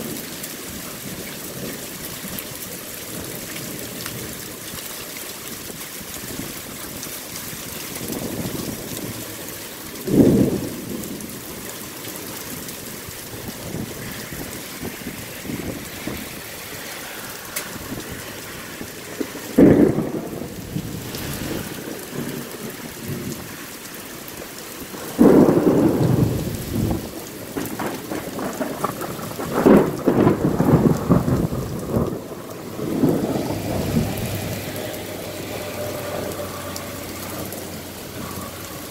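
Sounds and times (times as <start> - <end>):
heavy rain falling: 0.0 - 38.9
rumbling thunder: 7.9 - 23.6, 24.9 - 37.7
thunder claps: 10.0 - 11.6, 17.5 - 23.5, 24.9 - 36.5.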